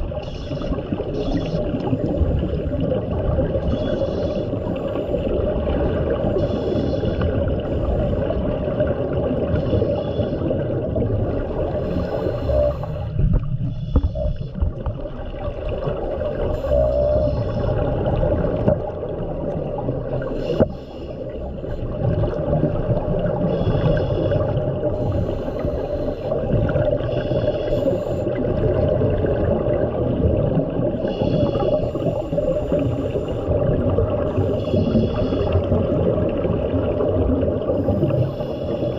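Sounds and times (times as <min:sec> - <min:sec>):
low underwater rumble: 0:00.0 - 0:38.9
diver breathing through regulator: 0:11.7 - 0:14.6, 0:20.3 - 0:21.9, 0:23.4 - 0:28.4, 0:31.0 - 0:33.5, 0:34.3 - 0:35.7, 0:37.7 - 0:38.9.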